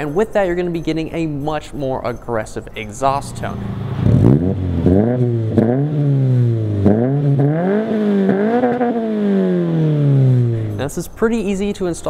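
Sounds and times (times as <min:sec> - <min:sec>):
car engine revving in blips: 0:03.1 - 0:10.9.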